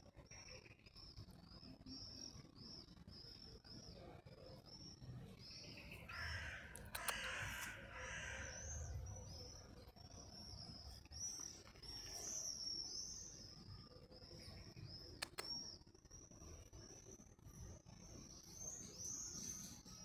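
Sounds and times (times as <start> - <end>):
birds chirping: 0.1 - 20.0
harsh raspy bird call: 6.1 - 8.9.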